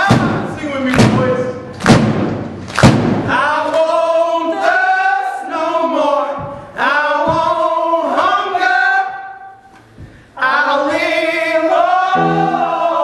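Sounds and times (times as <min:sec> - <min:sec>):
voices singing long held notes: 0:10.4 - 0:13.0.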